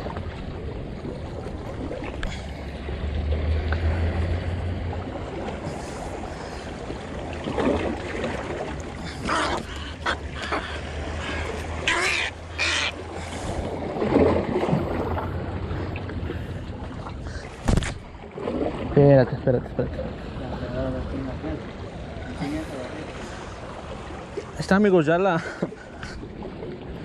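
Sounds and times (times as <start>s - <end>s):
wind and water rumble: 0.0s - 27.0s
egret squawking: 11.8s - 13.0s.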